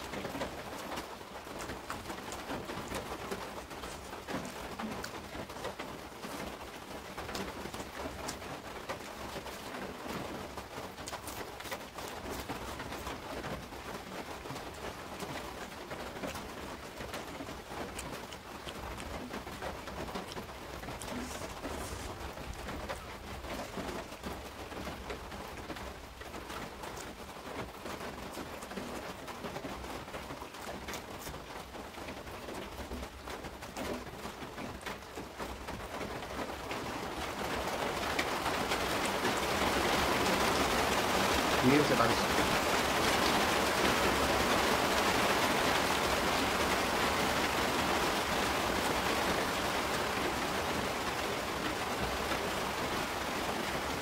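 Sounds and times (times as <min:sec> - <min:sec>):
open-mouthed chewing: 0:00.0 - 0:36.4
fingers squishing food: 0:10.8 - 0:13.2, 0:17.1 - 0:23.8.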